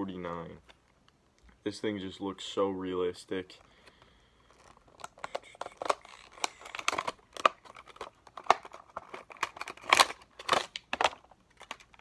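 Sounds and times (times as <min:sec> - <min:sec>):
plastic packaging crinkling and tearing: 0:04.4 - 0:12.0.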